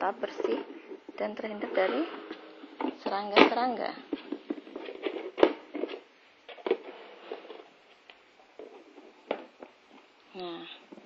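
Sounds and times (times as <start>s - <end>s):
plastic containers knocking: 0.2s - 6.9s, 8.5s - 10.1s.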